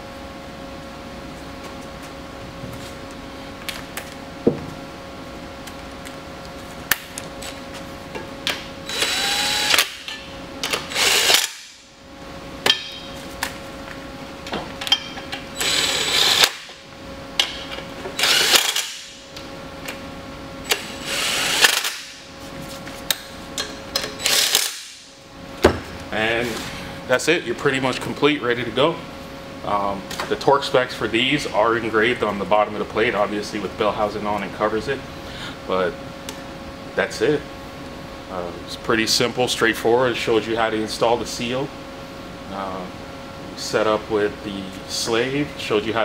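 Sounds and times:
cordless drill running in bursts: 8.9 - 10.0, 10.9 - 11.7, 15.6 - 16.6, 18.2 - 19.1, 20.8 - 22.0, 24.2 - 24.8.

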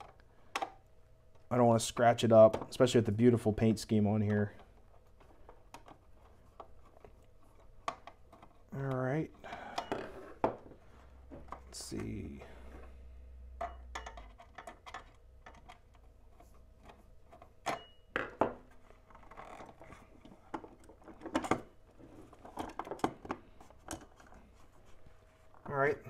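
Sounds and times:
plastic parts clicking and tapping: 4.2 - 12.2, 13.6 - 24.4.

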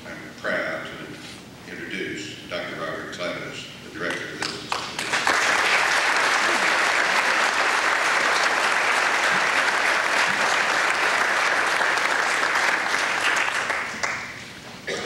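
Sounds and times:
audience applauding: 4.7 - 14.4.

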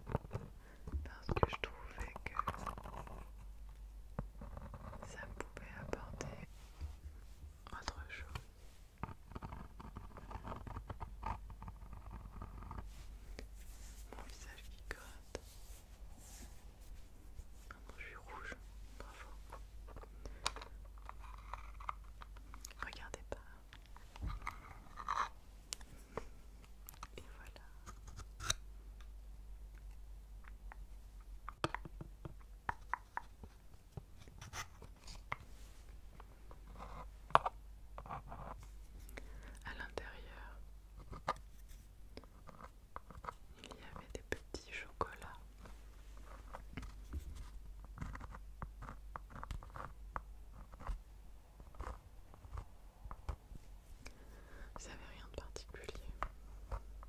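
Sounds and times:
soft rubbing: 4.4 - 28.5, 32.7 - 37.3
soft rapid clicking and tapping: 29.0 - 35.5, 51.6 - 57.0
wooden clicks and taps: 31.4 - 33.3.

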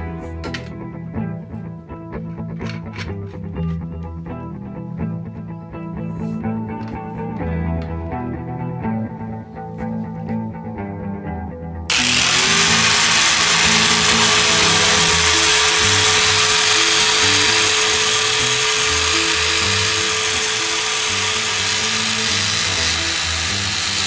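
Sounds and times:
background music with bass: 0.0 - 24.0
angle grinder cutting metal: 11.9 - 24.0.

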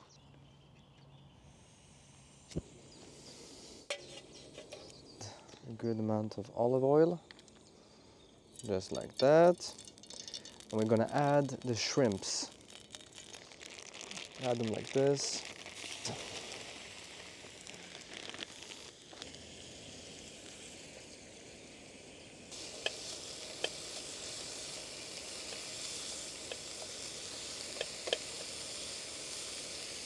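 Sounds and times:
shrimp sizzling in a frying pan: 8.7 - 30.0.

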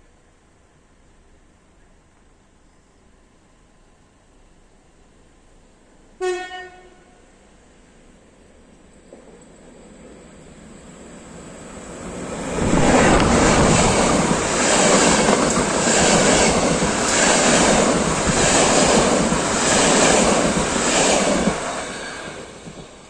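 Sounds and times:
train wheels rushing on rails: 9.0 - 23.0.

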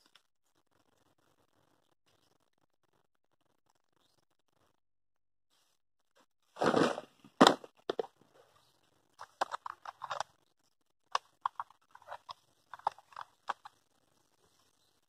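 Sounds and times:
small tackle clicks and rattles: 9.2 - 10.4, 11.1 - 13.8.

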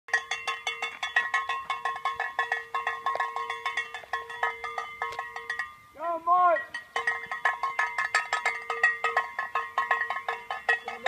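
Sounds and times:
hand bell ringing rapidly: 0.1 - 5.9, 6.6 - 11.0.

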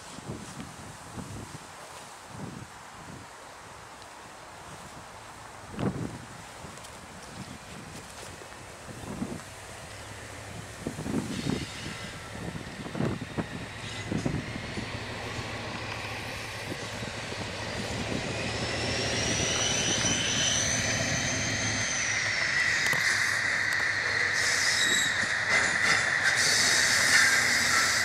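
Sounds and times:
diesel locomotive engine under load: 8.6 - 28.0
high whine: 9.7 - 28.0
wheels squealing on track: 16.0 - 28.0.

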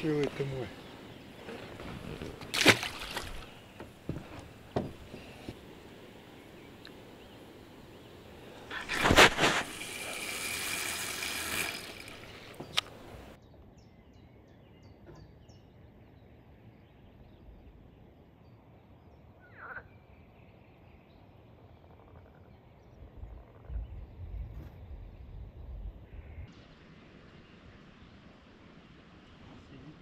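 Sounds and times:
small birds chirping: 0.0 - 9.2, 11.6 - 26.5
rustling noise: 8.7 - 9.9.

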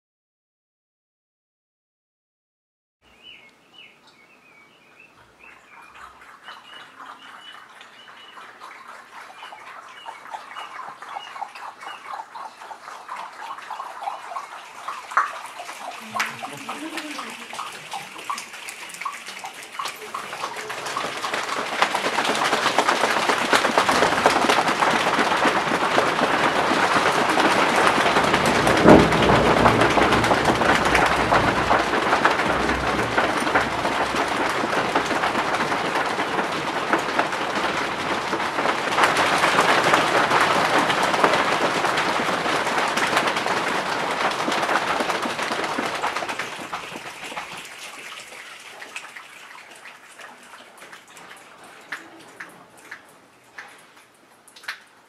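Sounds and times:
body percussion patter: 8.1 - 48.4.

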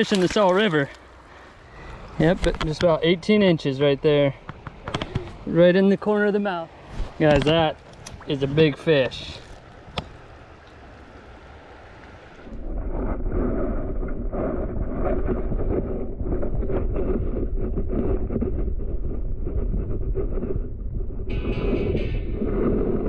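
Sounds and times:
muffled underwater river rush: 6.7 - 23.0.

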